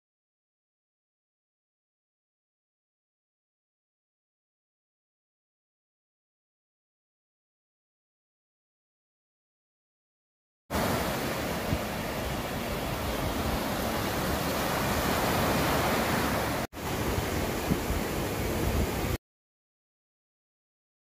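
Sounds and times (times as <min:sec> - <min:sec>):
waves breaking on beach: 0:10.7 - 0:19.2
wind buffeting microphone: 0:10.8 - 0:19.2.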